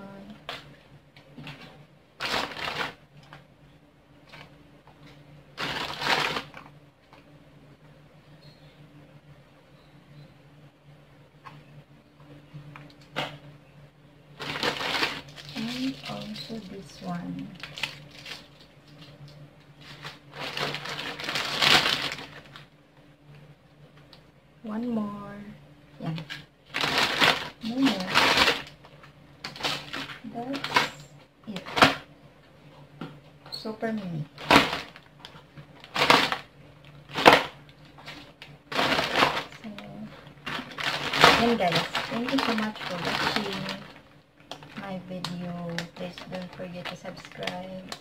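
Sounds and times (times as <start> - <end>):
faint low hum: 0.0 - 48.0
plastic bag crinkling: 0.4 - 3.4, 4.2 - 6.7, 14.4 - 22.7, 26.0 - 32.1, 34.0 - 48.0.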